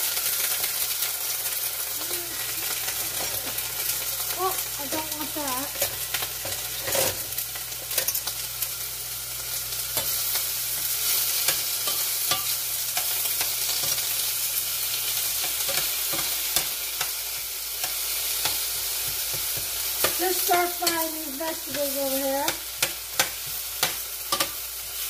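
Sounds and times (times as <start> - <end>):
vegetables sizzling in a pan: 0.0 - 25.0
spatula scraping a pan: 5.8 - 7.4.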